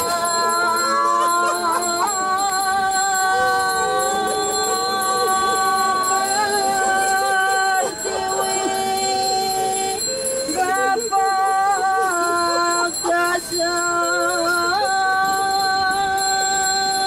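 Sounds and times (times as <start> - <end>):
gliding voice-like melody: 0.0 - 12.7
high bell-like ringing: 0.0 - 17.0.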